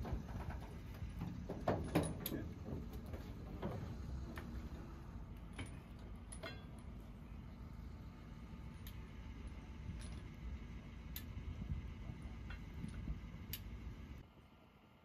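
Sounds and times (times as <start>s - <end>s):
low steady rumble: 0.0s - 15.0s
metallic clinks on steel boat: 5.4s - 7.0s.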